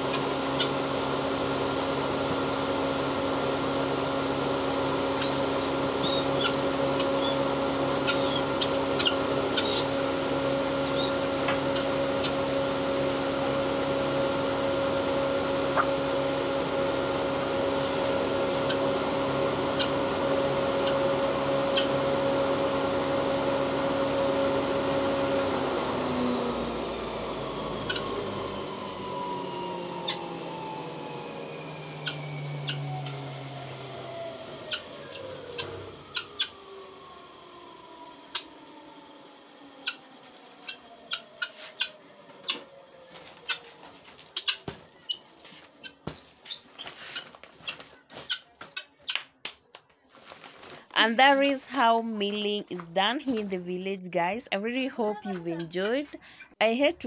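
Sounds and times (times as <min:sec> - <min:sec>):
hammer mill grinding: 0:00.0 - 0:42.8.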